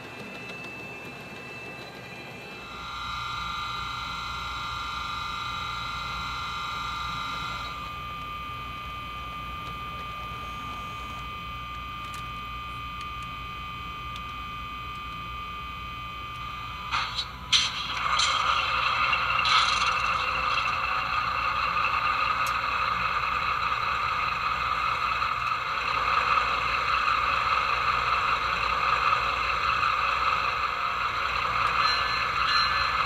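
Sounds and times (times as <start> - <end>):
model locomotive electric whine: 0.0 - 33.0.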